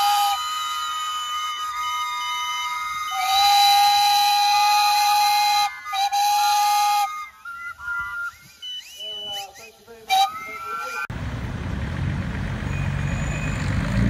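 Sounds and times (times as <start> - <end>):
low steam whistle: 0.0 - 11.1
steam whistles blowing: 0.0 - 11.1, 12.7 - 13.8.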